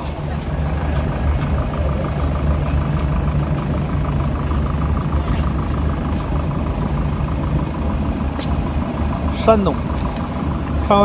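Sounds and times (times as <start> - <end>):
steady engine drone: 0.0 - 11.0.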